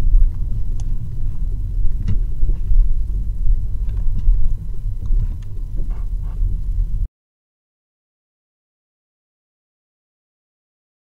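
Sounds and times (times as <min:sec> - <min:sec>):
car engine and road rumble: 0:00.0 - 0:07.1.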